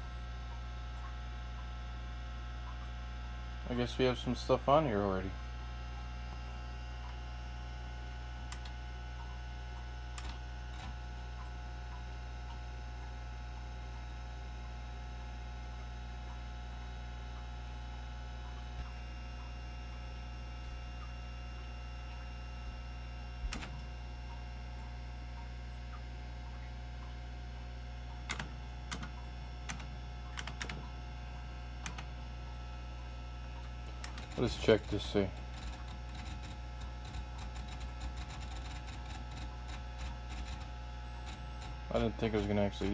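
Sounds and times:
computer humming: 0:00.0 - 0:42.9
keyboard key presses: 0:08.5 - 0:08.8, 0:10.2 - 0:10.9, 0:23.4 - 0:23.9, 0:28.3 - 0:31.0, 0:31.8 - 0:32.2.

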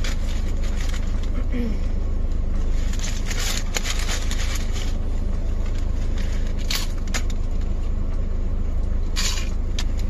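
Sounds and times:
car engine idling: 0:00.0 - 0:10.0
rustling crackles: 0:02.6 - 0:07.7.

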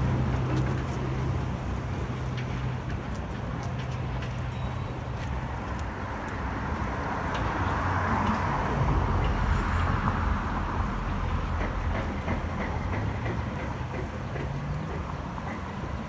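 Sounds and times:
footsteps on brick paving: 0:00.0 - 0:09.4
city traffic rumble: 0:00.0 - 0:16.0.

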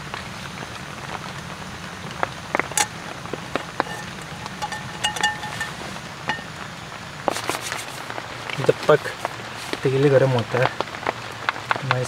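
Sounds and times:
rain patter: 0:00.0 - 0:12.0
ringing metallic tone: 0:02.8 - 0:06.6
metal clinks of steel pan: 0:03.5 - 0:06.5.

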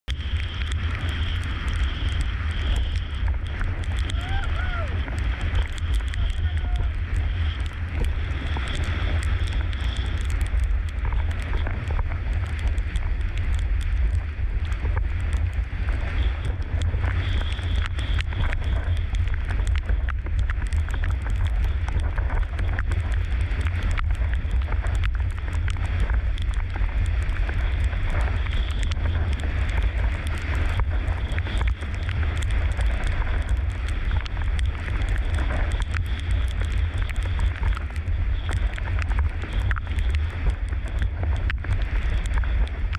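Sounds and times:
water rushing under board: 0:00.0 - 0:42.9
wind buffeting microphone: 0:00.0 - 0:42.9.

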